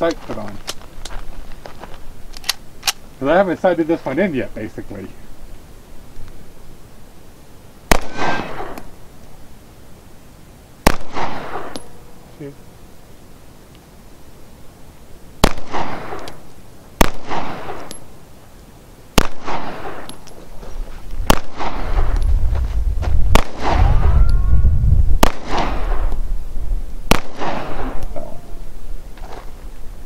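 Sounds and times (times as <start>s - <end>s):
pistol shots: 7.9s - 8.9s, 10.8s - 12.0s, 15.4s - 16.4s, 17.0s - 18.1s, 19.2s - 20.2s, 21.3s - 22.1s, 23.3s - 23.9s, 25.2s - 26.1s, 27.1s - 28.2s
low rumble: 21.6s - 27.1s.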